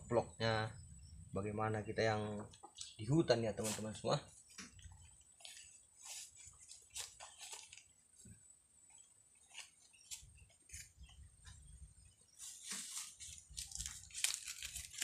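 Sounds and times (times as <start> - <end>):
plastic bags rustling and crinkling: 5.4 - 7.9, 12.4 - 15.0.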